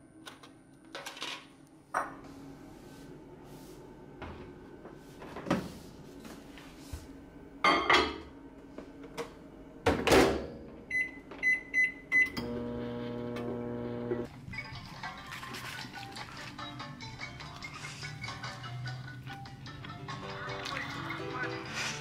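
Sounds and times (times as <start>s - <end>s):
microwave humming: 1.6s - 14.6s.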